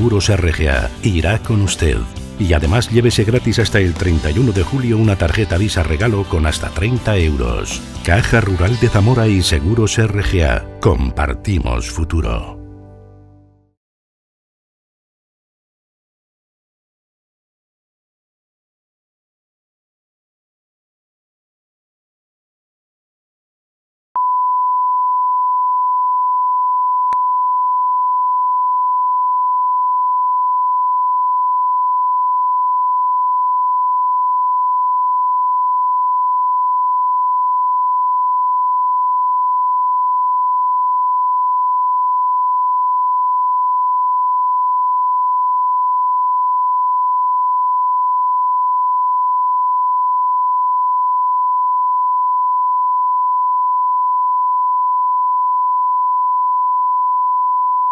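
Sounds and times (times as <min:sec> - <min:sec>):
steady sine-wave test tone: 0:24.2 - 0:57.9.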